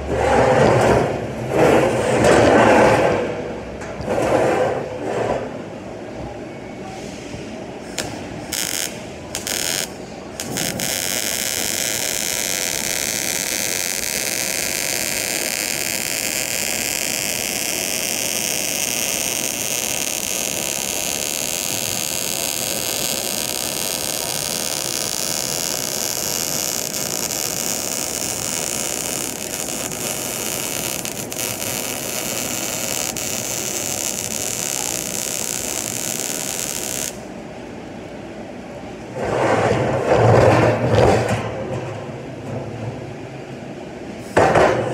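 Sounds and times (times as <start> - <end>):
welding arc crackling and hissing: 7.9 - 37.3.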